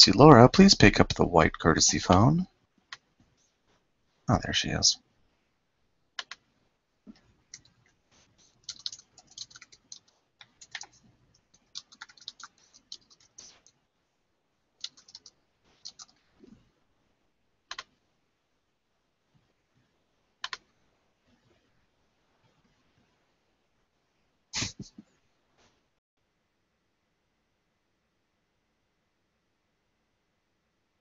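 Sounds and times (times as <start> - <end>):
faint keyboard typing: 2.0 - 3.8, 6.1 - 13.8, 14.8 - 16.7, 17.7 - 18.0, 20.4 - 21.7.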